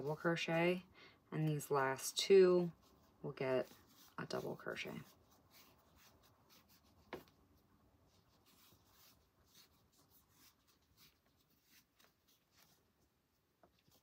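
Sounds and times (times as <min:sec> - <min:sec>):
soft rustling of yarn: 0:00.0 - 0:14.0.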